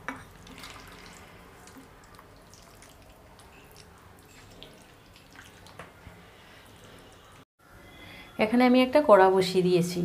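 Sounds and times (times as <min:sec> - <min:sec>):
wet squelching of kneading: 0:00.1 - 0:07.4.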